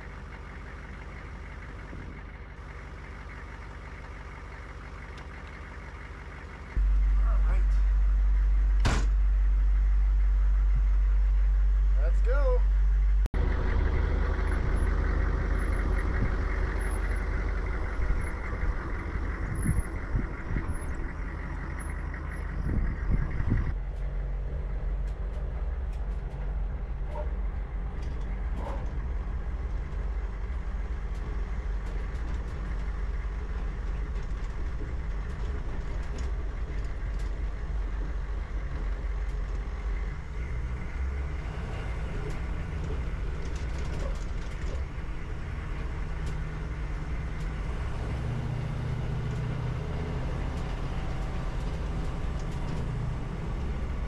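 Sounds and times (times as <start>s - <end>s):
diesel engine revving high: 6.3s - 23.8s, 37.4s - 54.0s
knocks and rattles: 25.0s - 41.4s.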